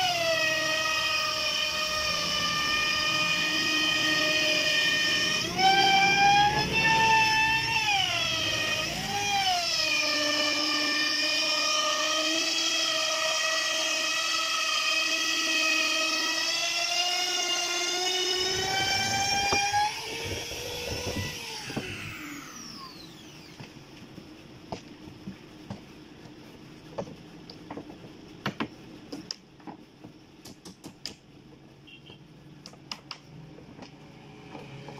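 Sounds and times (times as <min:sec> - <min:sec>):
router winding down: 0:00.0 - 0:23.7
electric router whining: 0:00.0 - 0:23.8.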